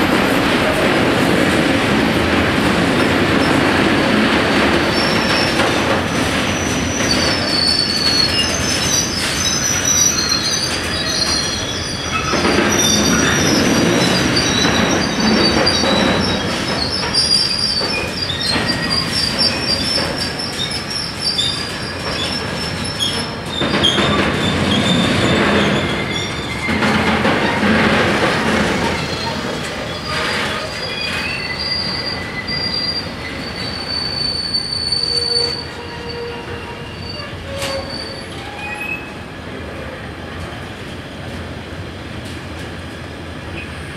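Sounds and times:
train wheels rumbling on rails: 0:00.0 - 0:43.9
high wavering wheel squeal: 0:06.5 - 0:26.9, 0:28.8 - 0:39.2.

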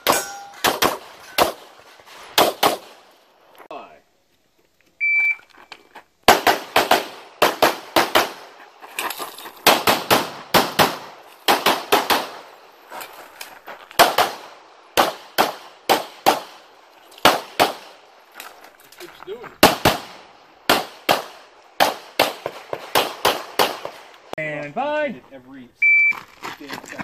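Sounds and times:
rapid handgun shots: 0:02.4 - 0:03.0, 0:06.3 - 0:08.5, 0:09.6 - 0:12.5, 0:14.0 - 0:18.0, 0:19.6 - 0:24.0.

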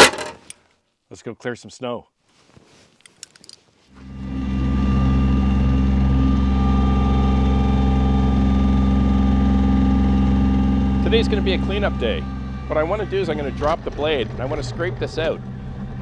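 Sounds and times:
tractor diesel engine running: 0:04.0 - 0:16.0.

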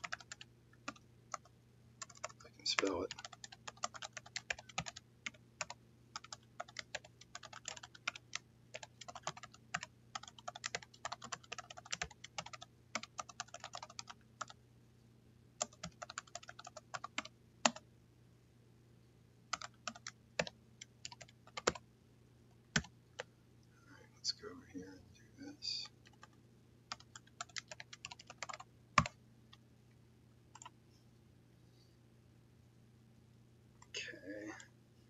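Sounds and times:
computer keyboard typing: 0:00.0 - 0:14.6, 0:15.6 - 0:17.8, 0:19.5 - 0:21.8, 0:22.7 - 0:23.3, 0:25.9 - 0:29.2, 0:30.5 - 0:30.8.

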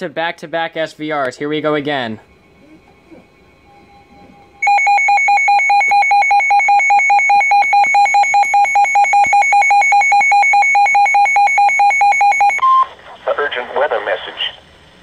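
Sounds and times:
rapidly pulsing electronic alarm beep: 0:02.3 - 0:12.9.

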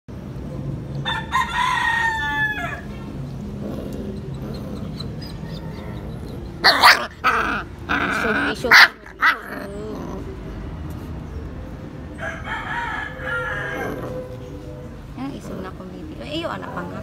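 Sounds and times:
rooster crowing: 0:01.0 - 0:03.0, 0:12.1 - 0:14.3
puppies yipping: 0:04.1 - 0:10.3.

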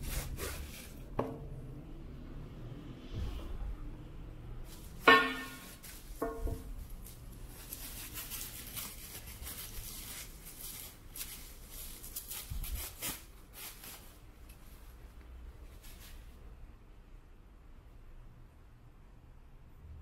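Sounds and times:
bubble wrap crinkling: 0:00.0 - 0:01.2, 0:04.7 - 0:16.4.

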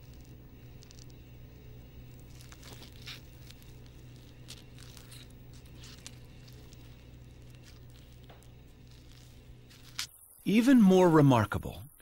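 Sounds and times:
low steady hum: 0:00.0 - 0:12.0
dry leaves crackling: 0:02.2 - 0:11.1.

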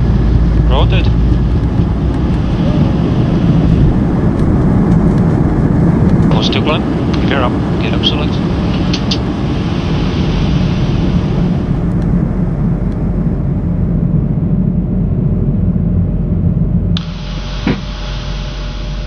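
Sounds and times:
aircraft cockpit rumble: 0:00.0 - 0:19.0
brief knock: 0:17.6 - 0:17.9.

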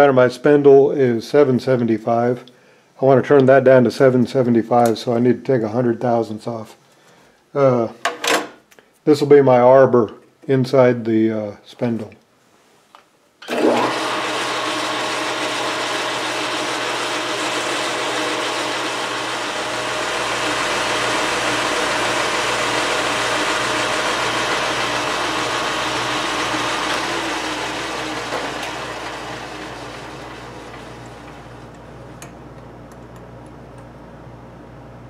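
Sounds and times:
metal lathe whirring: 0:13.4 - 0:31.9.

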